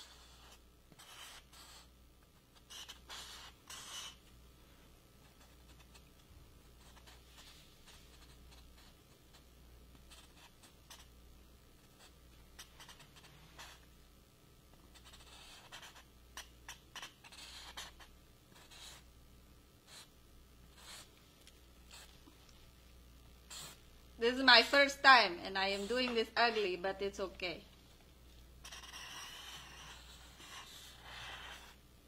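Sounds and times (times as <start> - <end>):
marker scratching on board: 0.0 - 1.9, 2.5 - 4.3, 5.2 - 6.2, 6.8 - 11.2, 12.0 - 13.9, 14.9 - 19.1, 19.9 - 20.1, 20.7 - 21.1, 21.9 - 22.2, 23.5 - 26.9, 28.6 - 31.8.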